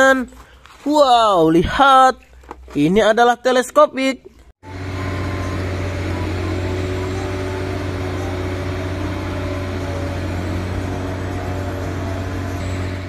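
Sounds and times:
diesel engine humming: 4.6s - 13.0s.

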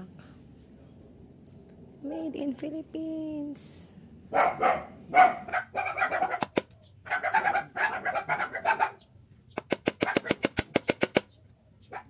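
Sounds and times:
dog barking: 4.3s - 9.0s, 10.0s - 10.4s.

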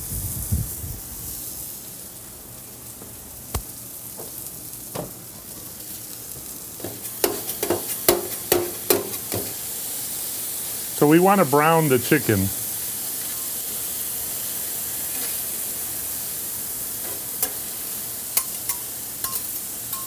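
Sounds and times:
meat sizzling on griddle: 0.0s - 20.0s
metal spatulas clinking and scraping: 18.4s - 20.0s.

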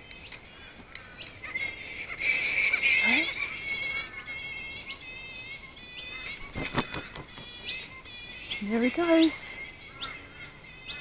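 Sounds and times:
flying foxes chattering: 0.0s - 11.0s.

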